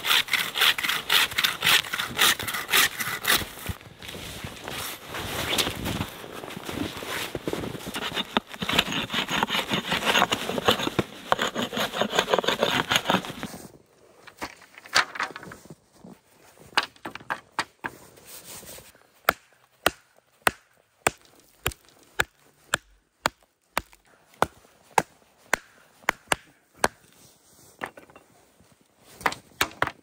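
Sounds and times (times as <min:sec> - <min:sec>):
hatchet splitting wood: 0:00.0 - 0:03.6, 0:08.0 - 0:13.5, 0:19.2 - 0:27.0.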